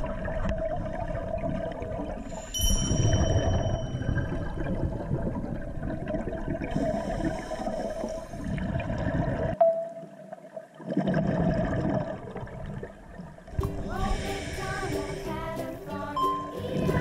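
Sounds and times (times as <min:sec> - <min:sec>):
low underwater rumble: 0:00.0 - 0:07.4
exhaled bubbles gurgling: 0:00.0 - 0:09.6, 0:10.5 - 0:17.0
regulator inhalation hiss: 0:13.7 - 0:16.0.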